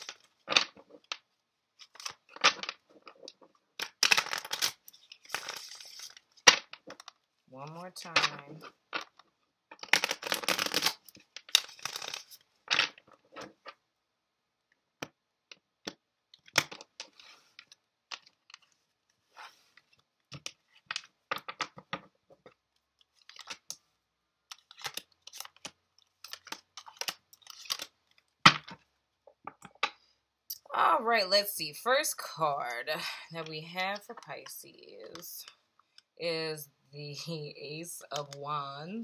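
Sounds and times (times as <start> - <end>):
cards being shuffled: 1.8 - 7.1, 9.7 - 13.8, 23.1 - 23.7, 24.5 - 28.8
cards flicking and tapping: 9.8 - 13.8.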